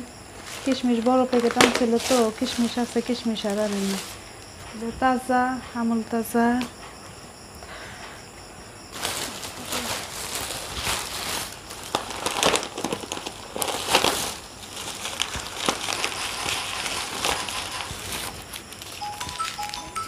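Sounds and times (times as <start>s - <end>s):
plastic bag rustling: 0.3s - 4.3s, 8.9s - 20.0s.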